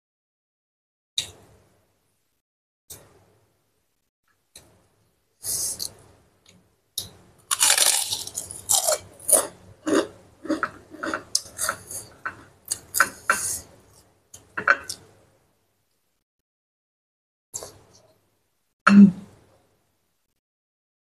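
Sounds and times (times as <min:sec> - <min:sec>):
crackers crunching: 0:07.4 - 0:11.6.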